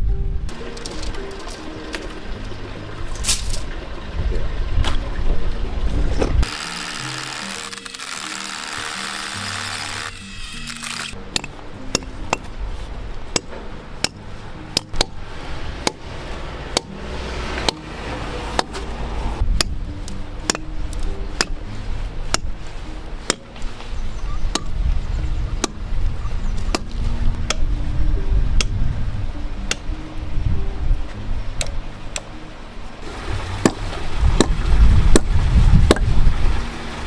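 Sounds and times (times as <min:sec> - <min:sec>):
sledgehammer striking steel rebar: 0:11.3 - 0:12.5, 0:13.3 - 0:15.2, 0:15.8 - 0:16.1, 0:16.7 - 0:18.0, 0:33.6 - 0:33.8.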